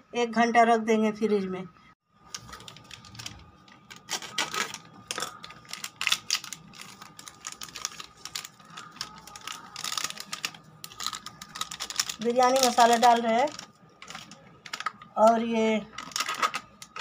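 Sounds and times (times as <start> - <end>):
foil sachet crinkling: 2.3 - 17.0.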